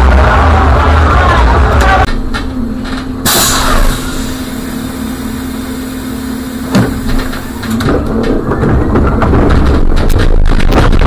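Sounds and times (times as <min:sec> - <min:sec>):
trolleybus electrical hum: 0:00.0 - 0:11.0.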